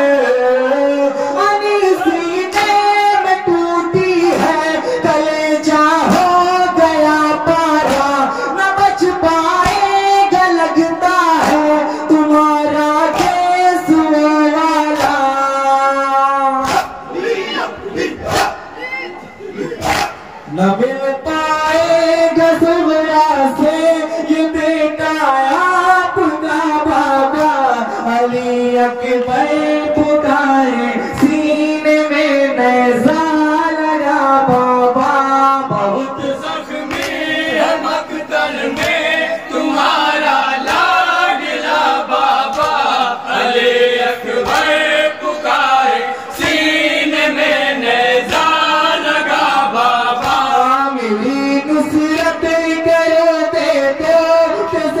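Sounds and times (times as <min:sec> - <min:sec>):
men singing a mourning chant: 0:00.0 - 0:18.7, 0:19.5 - 0:55.0
hands slapping chests: 0:11.4 - 0:11.7, 0:13.1 - 0:13.5, 0:15.0 - 0:15.2, 0:16.6 - 0:17.1, 0:18.2 - 0:18.6, 0:19.8 - 0:20.3, 0:36.8 - 0:37.8, 0:38.7 - 0:39.2, 0:40.6 - 0:41.0, 0:42.4 - 0:42.9, 0:50.2 - 0:50.5.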